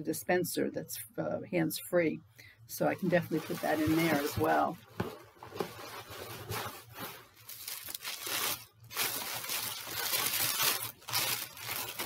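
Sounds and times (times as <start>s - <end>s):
tissue paper crinkling: 3.0s - 12.0s.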